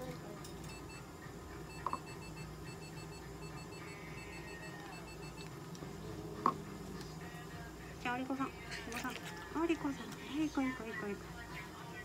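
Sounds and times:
rapid electronic beeps: 0:00.7 - 0:05.5.

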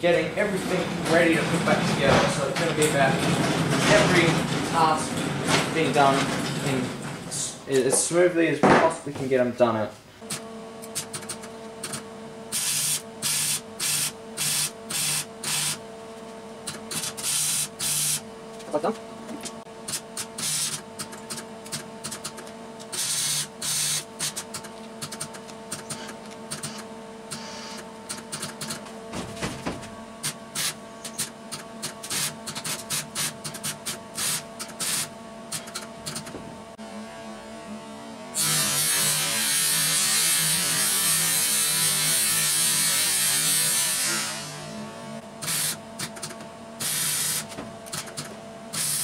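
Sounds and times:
welder electrical hum: 0:00.0 - 0:49.0
arc welding crackle: 0:48.8 - 0:49.0.

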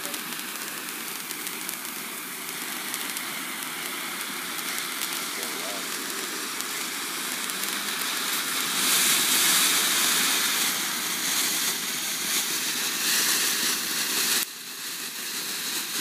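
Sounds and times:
firework fountain hissing: 0:00.0 - 0:16.0.

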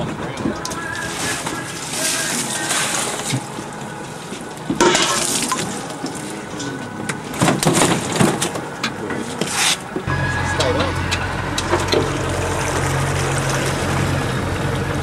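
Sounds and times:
fish splashing in plastic tub: 0:00.8 - 0:06.4.

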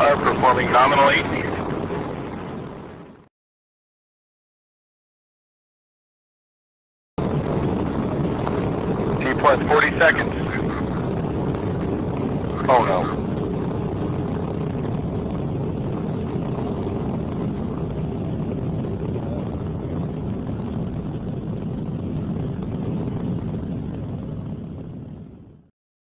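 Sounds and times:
rocket rumble: 0:00.0 - 0:03.3, 0:07.2 - 0:25.7
explosion: 0:07.2 - 0:25.7.

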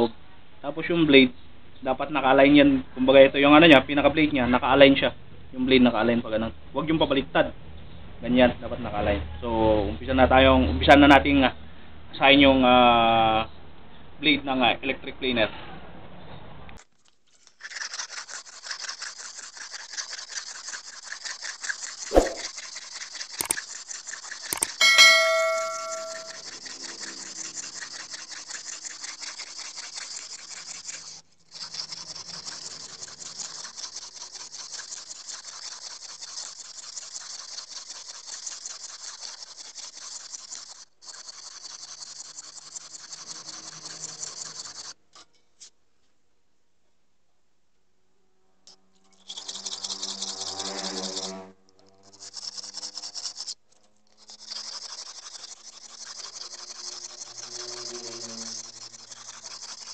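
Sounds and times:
blade rubbing on sharpening stone: 0:17.5 - 0:45.3, 0:49.0 - 0:59.9
sharp click: 0:22.1 - 0:22.5
ringing metallic clang: 0:24.8 - 0:26.4.

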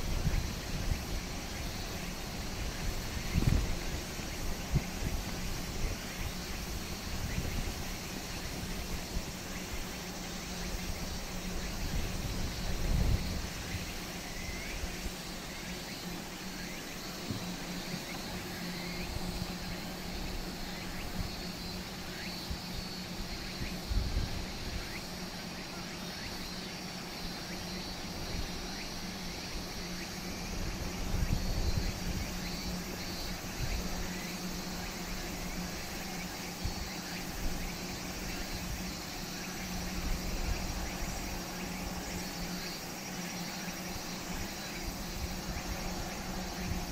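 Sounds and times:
wind buffeting microphone: 0:00.0 - 0:10.0, 0:10.7 - 0:15.6
high buzz of insects: 0:00.0 - 0:46.9.

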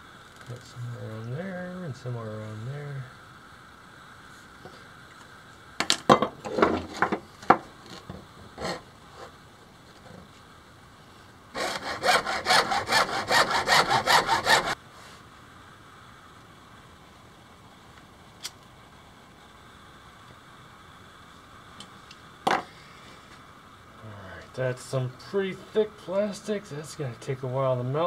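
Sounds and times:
hacksaw cutting plastic pipe: 0:08.6 - 0:08.8, 0:11.6 - 0:14.8.

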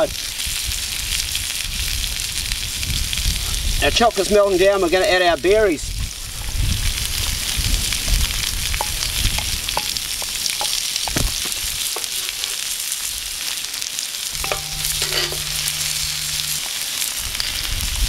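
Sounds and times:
meat sizzling on griddle: 0:00.0 - 0:18.0
cooking utensils clicking and scraping: 0:08.8 - 0:12.7, 0:14.4 - 0:16.6
low steady hum: 0:14.4 - 0:16.6.

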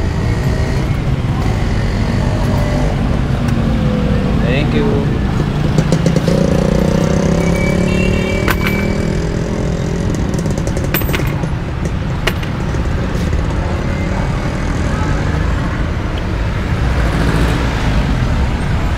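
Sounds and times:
street traffic noise: 0:00.0 - 0:18.9.

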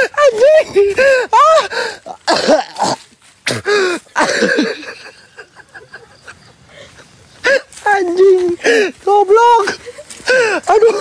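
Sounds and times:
man coughing: 0:02.2 - 0:05.0.

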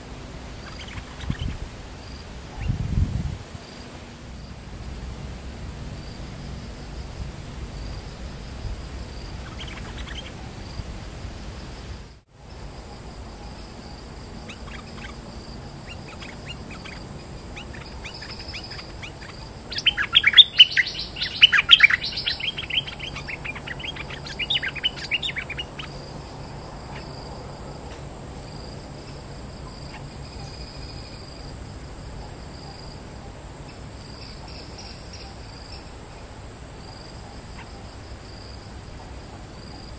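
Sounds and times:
insects droning: 0:00.0 - 0:39.9
bird chattering calls: 0:00.6 - 0:01.6, 0:09.4 - 0:10.4, 0:15.8 - 0:26.0.

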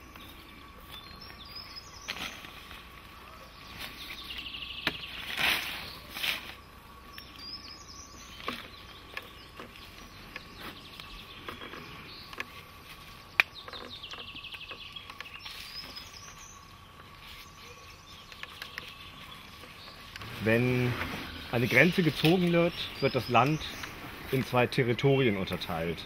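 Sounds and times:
wild birds calling: 0:00.0 - 0:26.0
bird trill of repeated notes: 0:17.3 - 0:26.0.

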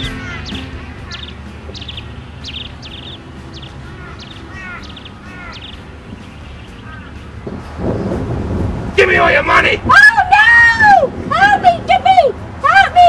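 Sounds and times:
lower chirping bird call: 0:00.0 - 0:08.4
outdoor background noise: 0:00.0 - 0:13.0.

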